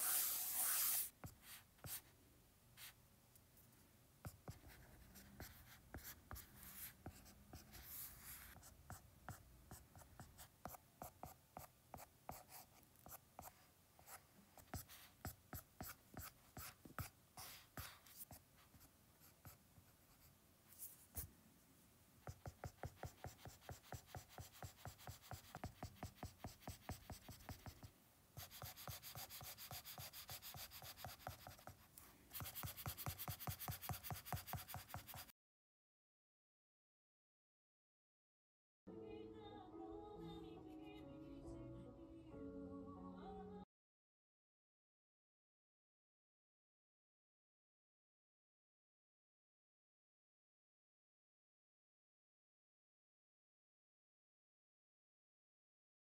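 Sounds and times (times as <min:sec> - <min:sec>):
stylus scratching on tablet screen: 0:00.0 - 0:01.1, 0:22.3 - 0:35.3.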